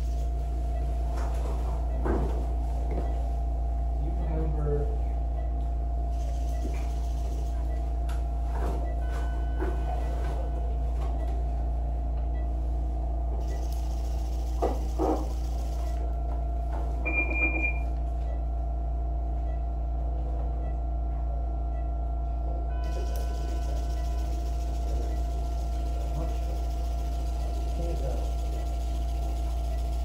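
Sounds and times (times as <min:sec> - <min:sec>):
low hum of equipment: 0:00.0 - 0:30.0
constant mid-pitched tone: 0:20.6 - 0:30.0.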